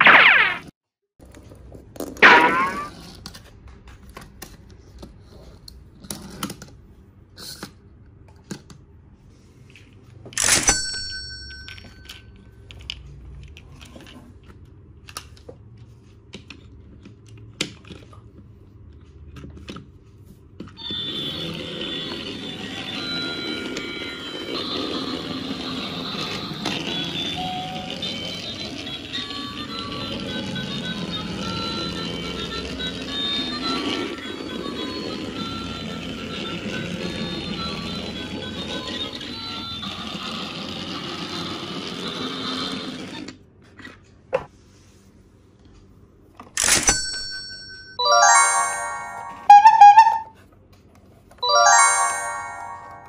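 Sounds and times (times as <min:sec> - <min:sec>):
tinny toy melody: 0:20.8 - 0:40.1, 0:48.0 - 0:50.3, 0:51.4 - 0:53.0
toy train motor running: 0:20.8 - 0:43.3.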